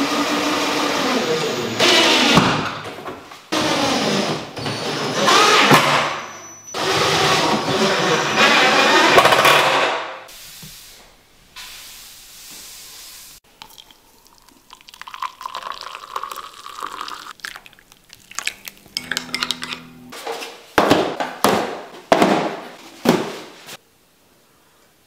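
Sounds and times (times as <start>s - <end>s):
hot water pouring into mug: 13.5s - 19.6s
mug clinking: 13.6s - 20.1s
boxes thumping on wooden table: 20.8s - 23.5s.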